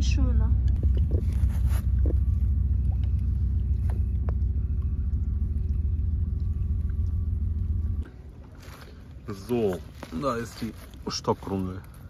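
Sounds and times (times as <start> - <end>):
deep rumble: 0.0 - 12.0.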